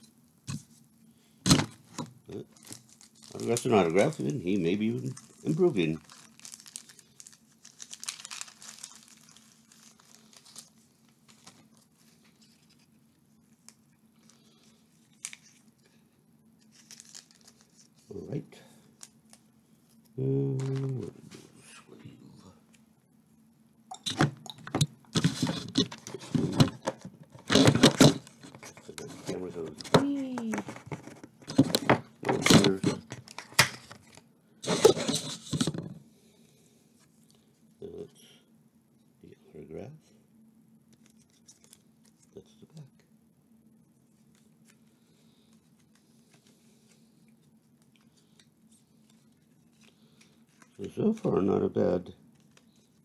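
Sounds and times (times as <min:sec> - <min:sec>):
low steady hum: 0:00.0 - 0:53.0.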